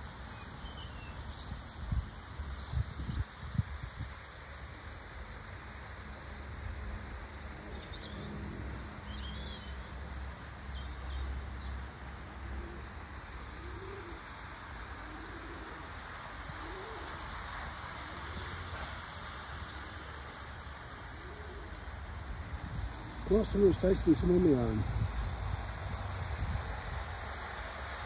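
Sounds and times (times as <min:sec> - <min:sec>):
small birds chirping: 0:00.3 - 0:03.9, 0:07.6 - 0:12.0
pigeon cooing: 0:12.4 - 0:18.9, 0:21.2 - 0:21.9.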